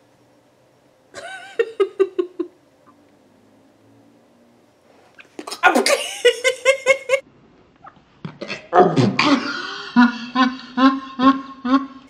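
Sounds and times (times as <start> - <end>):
woman laughing hard: 1.2 - 2.6, 5.7 - 7.2, 9.2 - 12.0.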